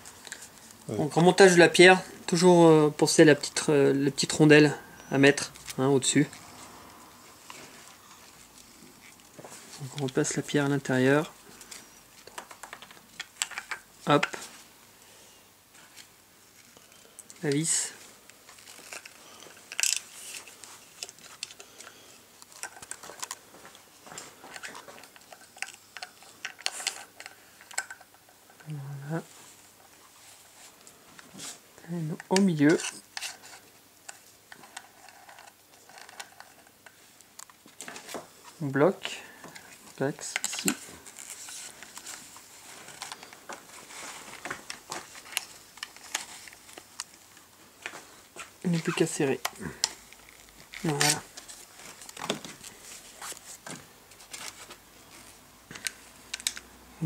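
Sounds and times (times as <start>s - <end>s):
small parts clicking and tapping: 11.6s - 14.4s, 18.5s - 28.8s, 32.2s - 38.0s, 55.7s - 56.7s
light clicks and taps of handled parts: 21.0s - 28.8s.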